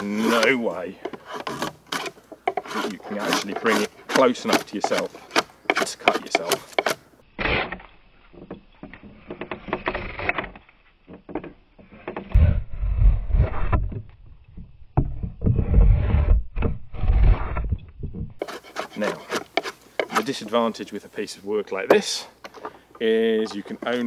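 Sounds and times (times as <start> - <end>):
draw knife scraping wood: 0.0 - 7.9, 8.9 - 10.6, 18.4 - 20.9
deep low rumble: 12.3 - 18.4.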